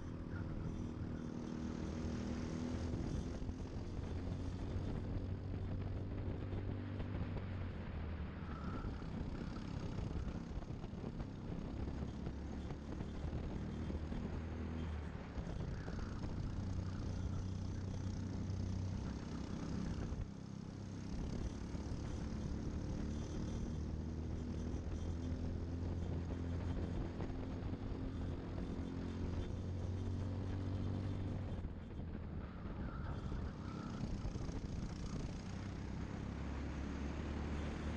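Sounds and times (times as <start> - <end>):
kart engine racing: 0.0 - 37.9
other kart engines: 0.0 - 37.9.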